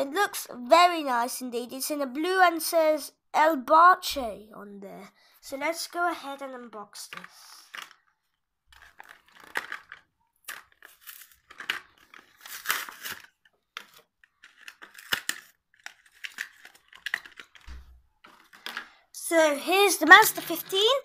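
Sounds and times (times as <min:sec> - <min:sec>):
plastic blister crinkling: 0:07.1 - 0:19.0
cardboard tearing: 0:08.9 - 0:17.8.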